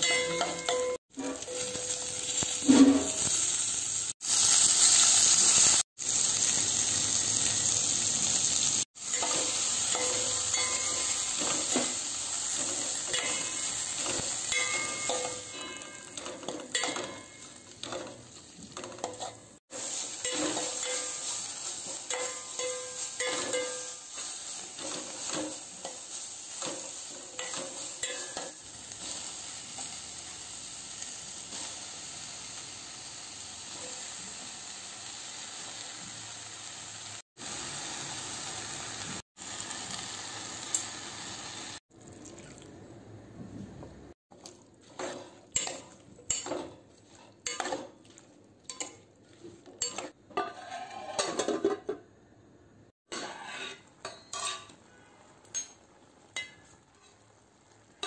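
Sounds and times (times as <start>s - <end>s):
stirring clinks against steel pot: 0.0s - 1.6s, 14.5s - 18.2s
vegetables sizzling in oil: 0.0s - 41.8s, 44.4s - 51.2s, 55.5s - 58.0s
spatula scraping a pan: 2.5s - 3.3s, 9.1s - 29.2s, 44.8s - 51.9s, 53.1s - 55.7s.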